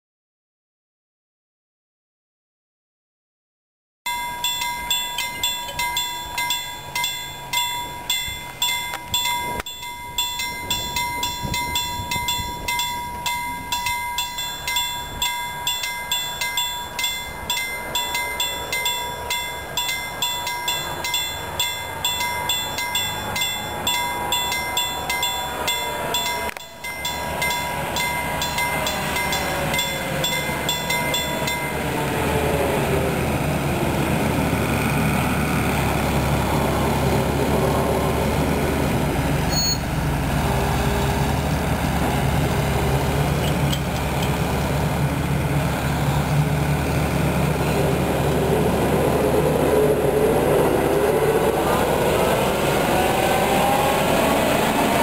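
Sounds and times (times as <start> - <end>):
level crossing warning bell dinging: 4.1 - 32.9, 39.5 - 40.0
excavator engine: 4.6 - 55.0.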